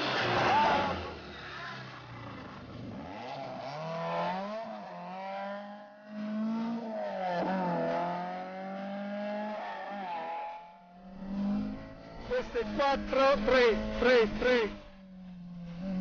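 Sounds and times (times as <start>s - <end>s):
rally car engine accelerating: 0.0s - 16.0s.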